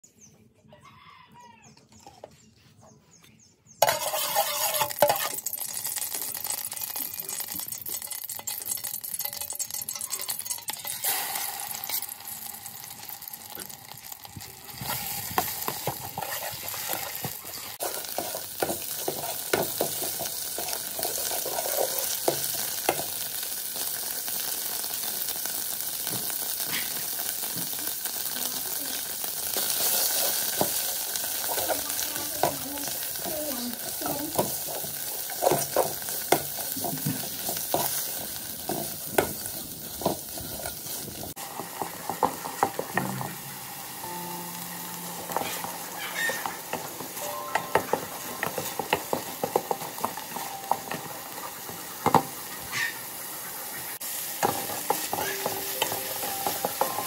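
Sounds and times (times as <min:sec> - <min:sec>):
metal spoon scraping pot: 0:03.8 - 0:05.8, 0:14.8 - 0:22.6
oil trickling into metal pot: 0:03.8 - 0:17.4
paste sizzling in hot oil: 0:03.8 - 0:57.0.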